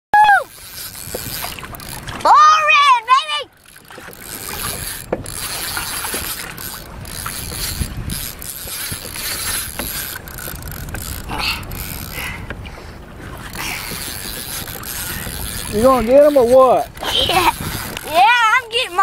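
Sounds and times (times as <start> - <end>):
fishing reel clicking: 0.3 - 12.6, 13.4 - 19.0
wind noise on microphone: 3.8 - 19.0.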